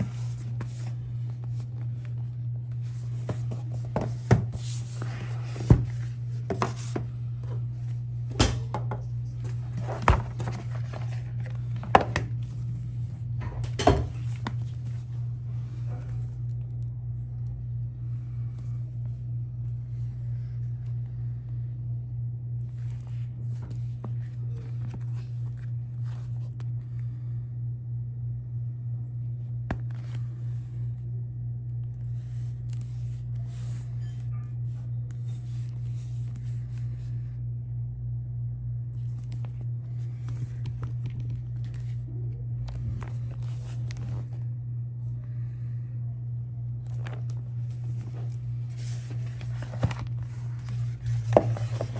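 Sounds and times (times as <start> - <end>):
rustling of book pages and cover: 0.0 - 8.1, 9.1 - 16.9, 22.6 - 26.8, 29.7 - 31.1, 31.9 - 37.3, 38.9 - 44.5, 46.8 - 51.9
steady low hum: 0.0 - 51.9.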